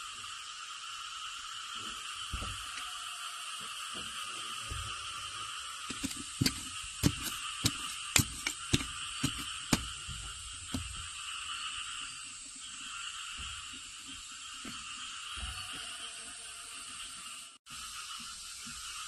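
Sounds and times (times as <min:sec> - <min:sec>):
animal chorus: 0:01.8 - 0:19.0
metal rod knocking into clay: 0:05.9 - 0:09.9.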